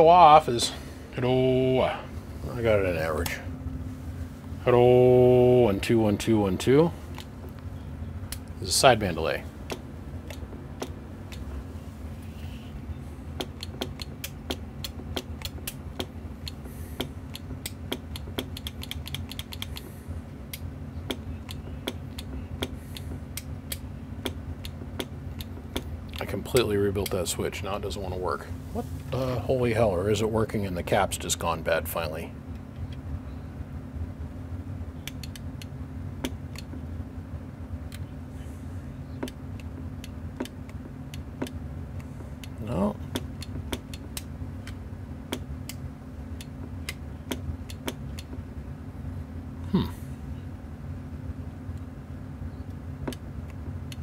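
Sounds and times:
steady low hum: 0.0 - 54.0
switch clicking: 35.0 - 36.7.

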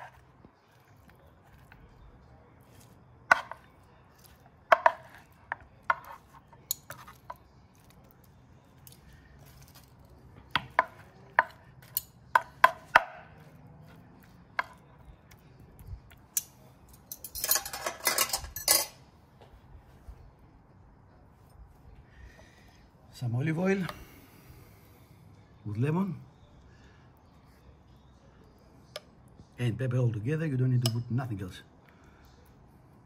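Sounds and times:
cutlery scraping on wooden board: 17.2 - 19.0.

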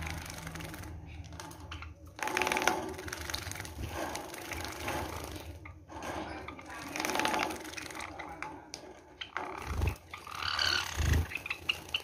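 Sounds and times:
water splashing: 0.0 - 8.7
sparrows chattering clicks: 9.1 - 12.0
wings fluttering: 9.2 - 12.0.

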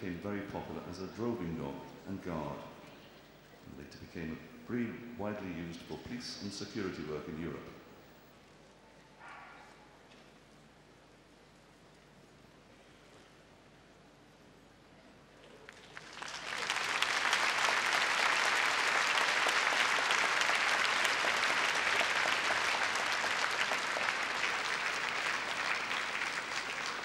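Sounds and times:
large crowd applauding: 15.7 - 27.0.

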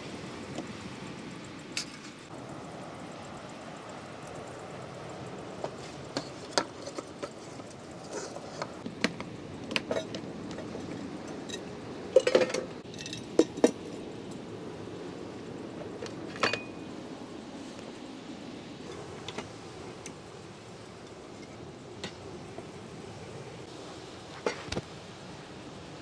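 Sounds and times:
clicks and clinks of dishes: 9.7 - 13.8, 16.3 - 16.7.

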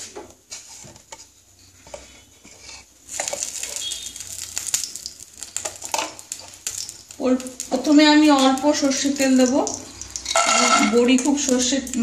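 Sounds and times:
oil pouring into pan: 9.2 - 10.8.

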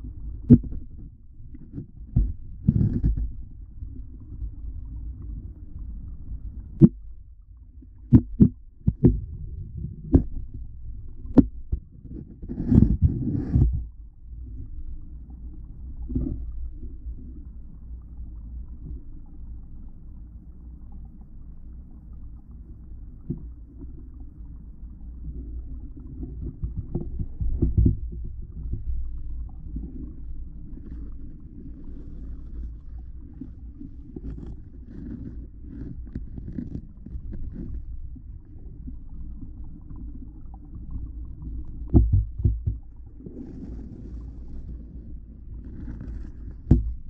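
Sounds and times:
muffled underwater water rumble: 0.0 - 47.0
dull thuds and knocks: 41.9 - 42.9, 46.6 - 47.0.

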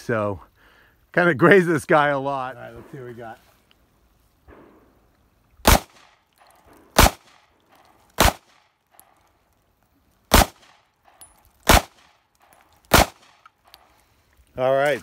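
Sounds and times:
pistol shots with echo: 5.6 - 7.5, 8.2 - 8.6, 10.3 - 13.4.

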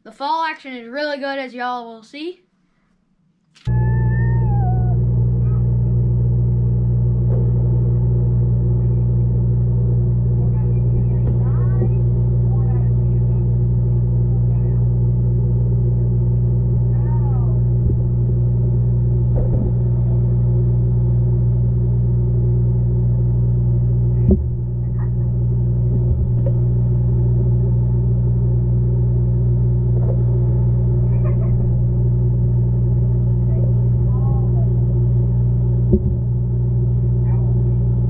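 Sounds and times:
underwater droning rumble: 3.7 - 38.0
sharp knock: 7.2 - 7.8, 35.8 - 36.4.

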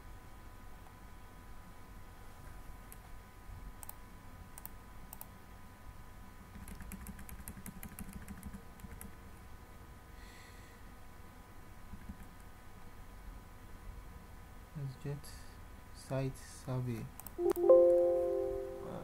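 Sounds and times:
faint steady hum: 0.0 - 19.0
keyboard typing: 6.6 - 9.1, 17.2 - 18.1.

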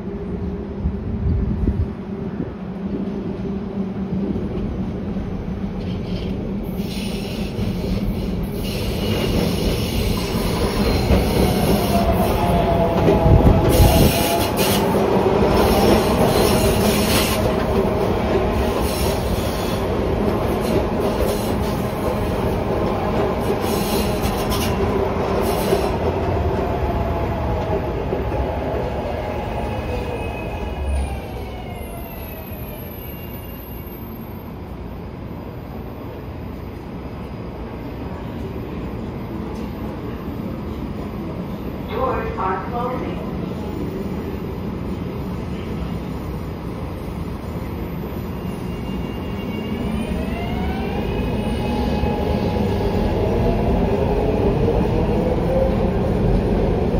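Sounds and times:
steady train whine: 0.0 - 56.9
train wheels squealing: 5.8 - 12.4, 18.8 - 19.9, 29.8 - 34.5, 48.2 - 52.6.

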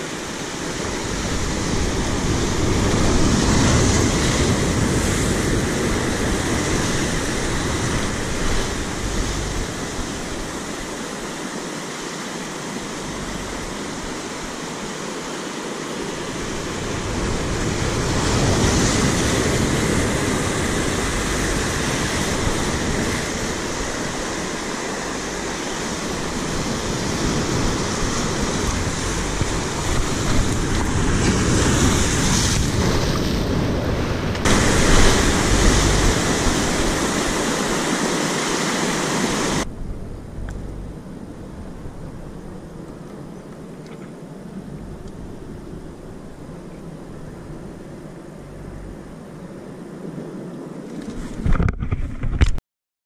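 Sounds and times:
wind buffeting microphone: 0.0 - 11.4, 16.1 - 52.6
surf breaking over rocks: 0.0 - 40.1.

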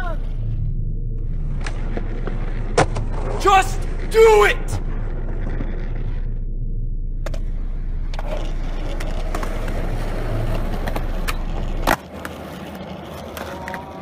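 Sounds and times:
skateboard wheels rolling: 7.2 - 14.0.

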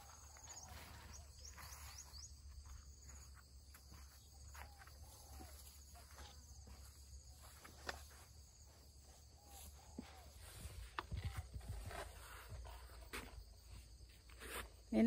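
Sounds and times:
bird chirps: 0.0 - 7.6
insects trilling: 0.0 - 15.0.

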